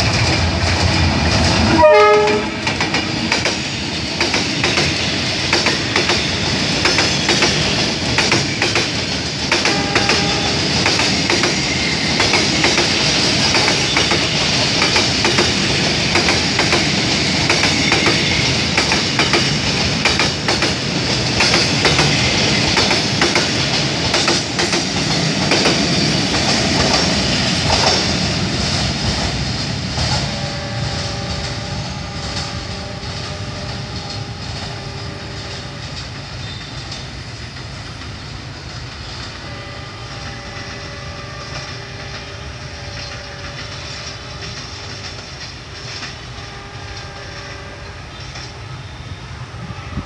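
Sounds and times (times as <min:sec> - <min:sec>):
train wheels clattering over rail joints: 0:00.0 - 0:39.5, 0:40.6 - 0:47.4
wheels squealing on rail: 0:01.4 - 0:23.6, 0:24.4 - 0:50.0.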